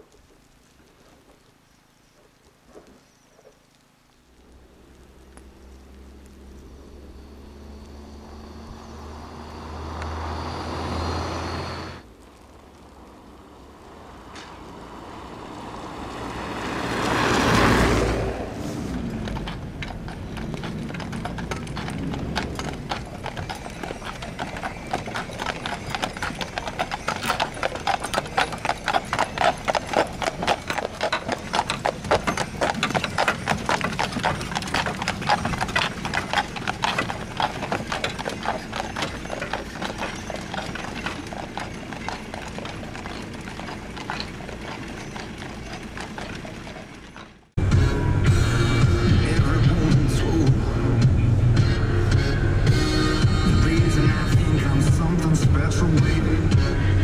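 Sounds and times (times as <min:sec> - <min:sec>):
low engine hum: 0:04.2 - 0:57.0
vehicle driving past: 0:04.8 - 0:57.0
horse hooves clip-clopping on snow: 0:15.5 - 0:47.6, 0:48.8 - 0:57.0.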